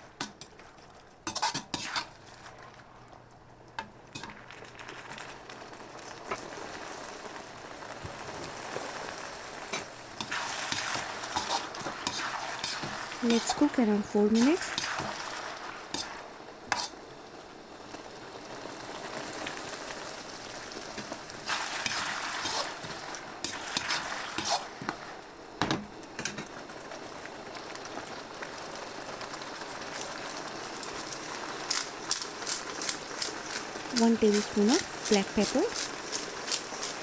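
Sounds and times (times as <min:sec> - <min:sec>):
vegetables sizzling in a pan: 0:00.0 - 0:37.0
utensil scraping against pan: 0:01.3 - 0:02.2, 0:10.2 - 0:13.7, 0:16.7 - 0:16.9, 0:21.8 - 0:24.8.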